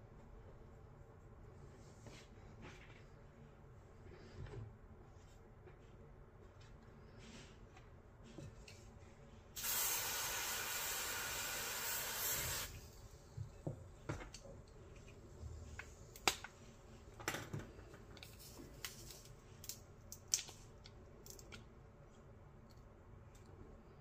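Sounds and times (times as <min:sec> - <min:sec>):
aerosol spray hissing: 0:09.6 - 0:12.8.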